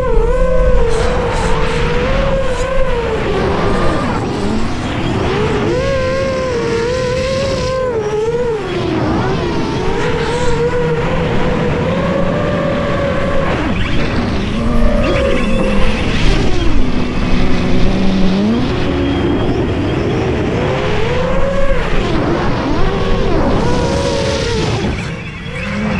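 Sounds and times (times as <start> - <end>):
drone motors whining: 0.0 - 25.9.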